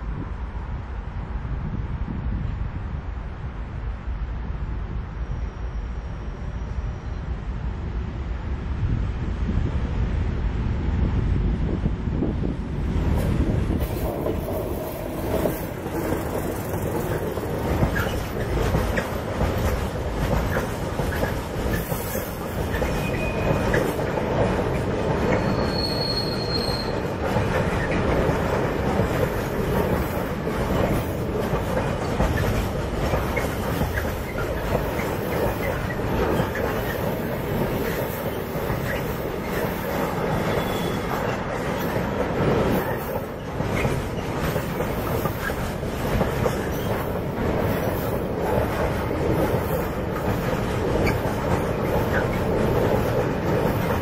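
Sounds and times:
diesel locomotive engine passing: 0:00.0 - 0:54.0
train wheels clattering on rails: 0:13.0 - 0:54.0
high wheel squeals: 0:16.4 - 0:19.1, 0:20.5 - 0:24.1, 0:25.3 - 0:28.0, 0:37.9 - 0:41.9.

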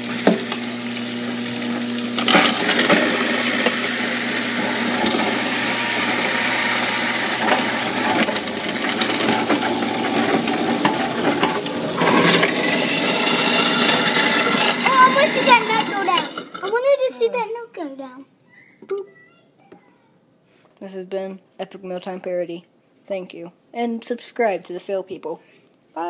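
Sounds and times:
tap water running into metal sink: 0:00.0 - 0:17.0.

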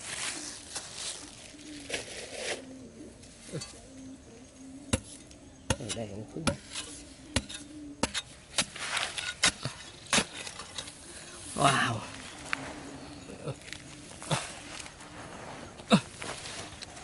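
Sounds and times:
digging tool striking dry soil: 0:04.9 - 0:10.9.

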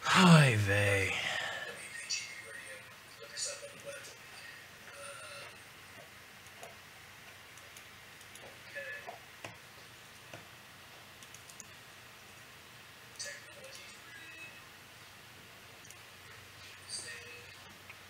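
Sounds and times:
low hiss: 0:00.0 - 0:02.4.

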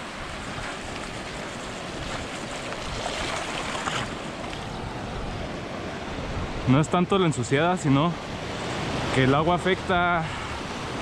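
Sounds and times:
bike rolling over trail: 0:00.0 - 0:04.6
wind on microphone: 0:00.0 - 0:07.0.

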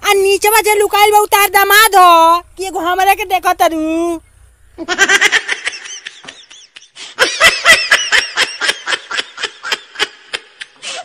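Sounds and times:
high-pitched laughter: 0:04.8 - 0:11.0.

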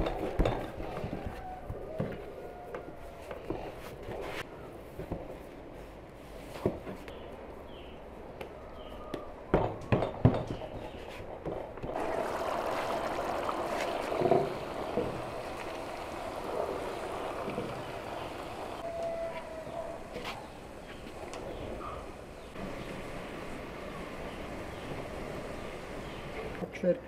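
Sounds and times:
liquid boiling in a cauldron: 0:11.8 - 0:18.9, 0:20.0 - 0:26.6.

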